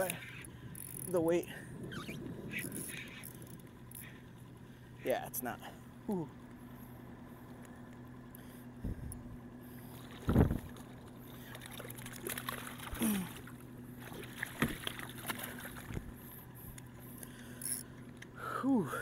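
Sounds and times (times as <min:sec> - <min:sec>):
fish splashing in water: 0:09.9 - 0:16.1.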